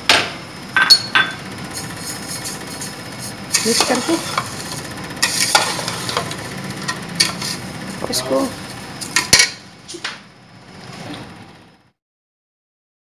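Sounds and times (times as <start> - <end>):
spoon scraping metal pot: 1.7 - 9.6.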